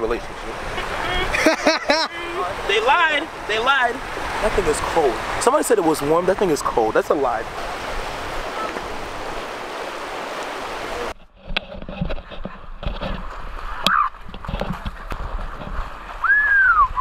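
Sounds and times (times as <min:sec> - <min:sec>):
lake surf hiss: 0:00.0 - 0:11.1
wind: 0:00.0 - 0:17.0
feet running through shallow water: 0:12.2 - 0:17.0.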